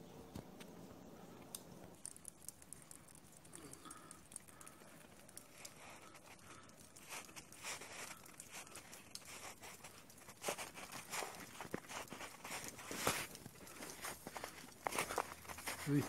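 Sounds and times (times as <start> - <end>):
footsteps crunching in snow: 7.0 - 16.0.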